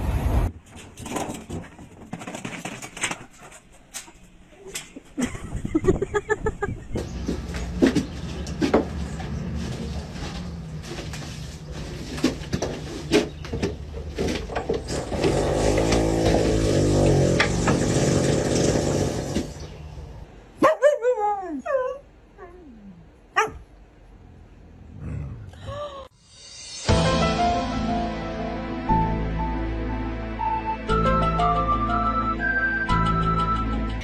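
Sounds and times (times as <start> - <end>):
knocks and clatter: 4.8 - 19.6.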